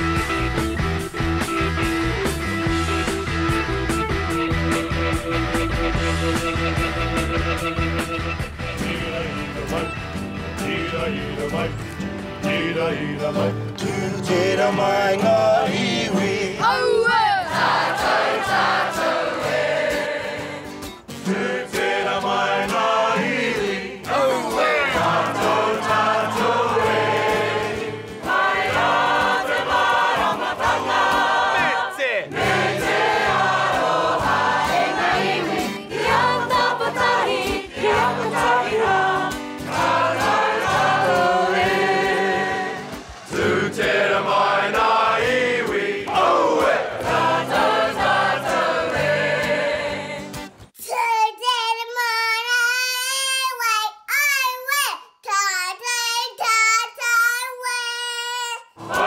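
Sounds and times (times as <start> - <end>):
instrumental backing music: 0.0 - 31.8
choir singing: 8.5 - 50.5, 58.8 - 59.0.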